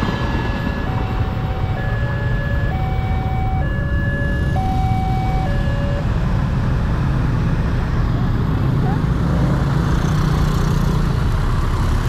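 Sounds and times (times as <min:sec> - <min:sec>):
two-tone crossing alarm: 0:00.0 - 0:06.2.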